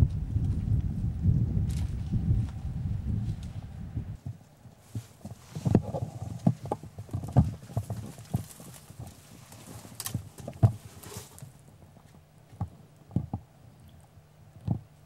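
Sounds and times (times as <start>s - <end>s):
footsteps on rocky ground: 4.2s - 12.8s.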